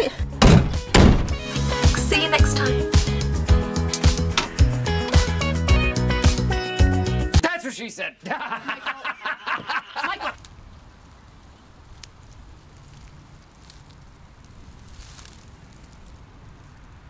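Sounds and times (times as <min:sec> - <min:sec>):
man speaking: 0:07.4 - 0:08.5.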